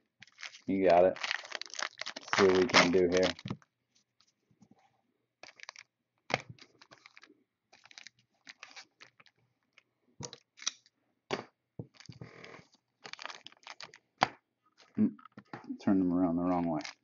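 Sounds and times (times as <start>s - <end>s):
foil rustling: 0.2s - 3.5s, 6.8s - 9.3s
foil packs crinkling: 0.2s - 3.6s, 5.4s - 9.4s, 13.0s - 14.1s, 16.7s - 17.0s.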